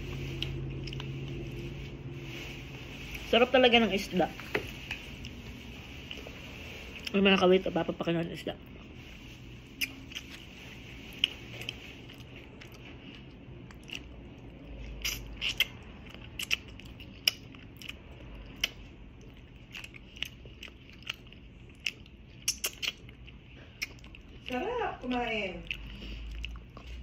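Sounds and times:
soft mouth sounds: 9.6s - 24.5s
chewing clicks and crunches: 11.1s - 27.0s.

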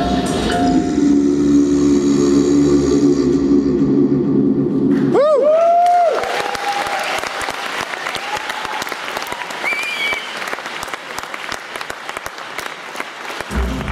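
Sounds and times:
audience applauding: 5.6s - 13.9s.

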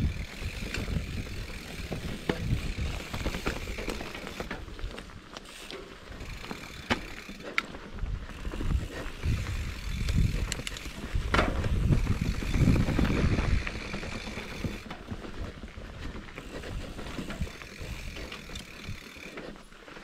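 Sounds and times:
freehub ticking: 0.0s - 4.5s
bike rattles and knocks: 0.0s - 20.0s
mountain bike rumbling over dirt: 0.0s - 20.0s.

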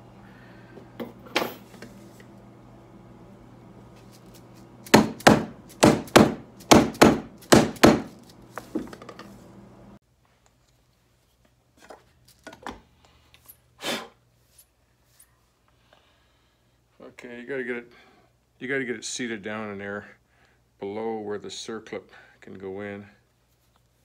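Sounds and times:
steady background hum: 0.0s - 23.7s
hammer knocking on plastic pipe: 4.9s - 8.1s.

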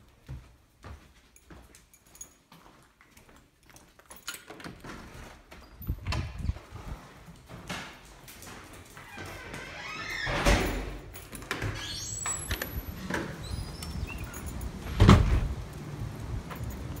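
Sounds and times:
door squeaking: 9.0s - 15.4s
door thudding shut: 14.9s - 15.5s.

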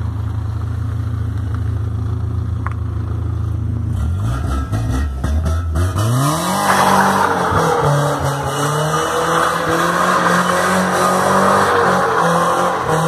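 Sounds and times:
car engine revving hard: 4.0s - 13.0s
tyres spinning and squealing: 4.4s - 13.0s.

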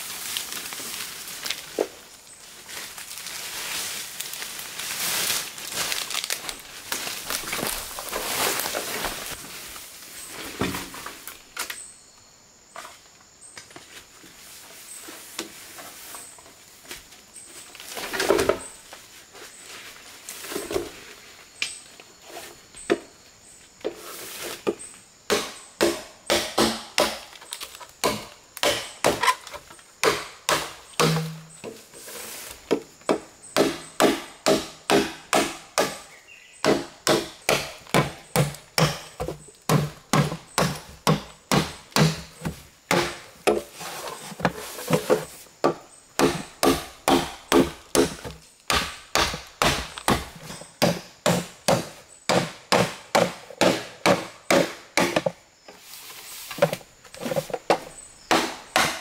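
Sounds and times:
machete chopping bamboo: 25.3s - 31.6s, 33.1s - 43.7s, 45.6s - 55.4s, 57.7s - 59.0s.

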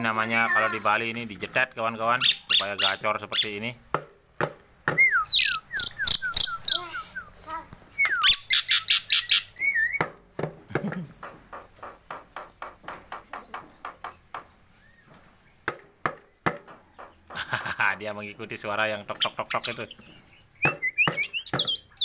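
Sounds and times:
bird clicking calls: 4.9s - 6.9s, 8.0s - 10.1s, 19.1s - 22.0s
myna whistles and squawks: 5.0s - 10.0s.

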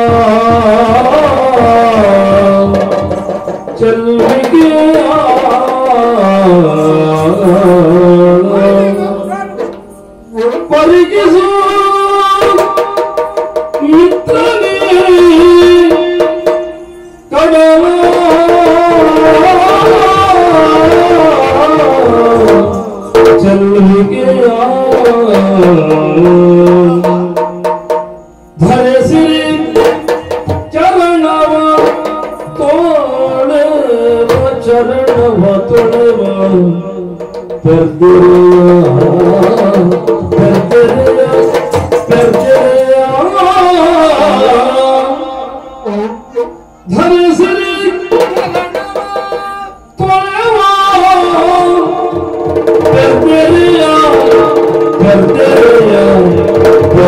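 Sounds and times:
hand drum strokes: 0.0s - 11.5s, 37.2s - 43.4s
man singing: 0.0s - 57.0s.

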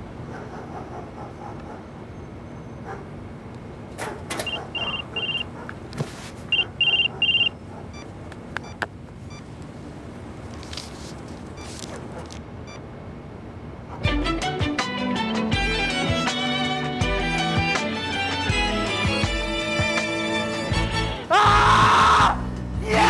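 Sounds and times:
steady background noise: 0.0s - 14.1s
short high electronic beeps: 4.4s - 5.4s, 6.5s - 7.5s
music: 14.0s - 23.0s.

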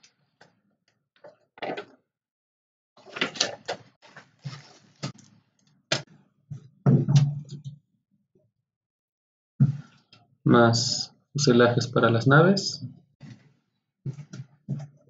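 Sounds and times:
paper booklets rustling: 3.0s - 5.3s.

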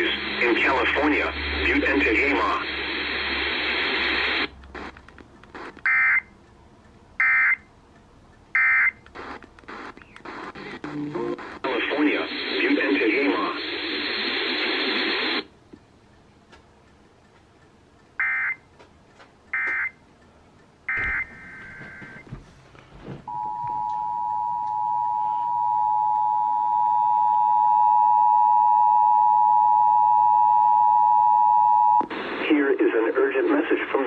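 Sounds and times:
data bursts from radio speaker: 0.0s - 4.5s, 9.2s - 15.4s.

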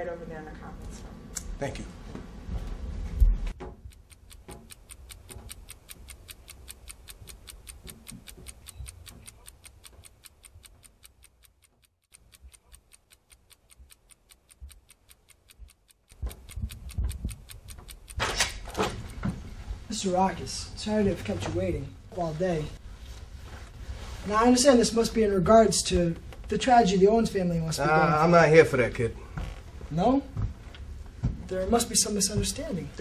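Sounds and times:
clock ticking: 3.5s - 19.3s, 31.2s - 33.0s.

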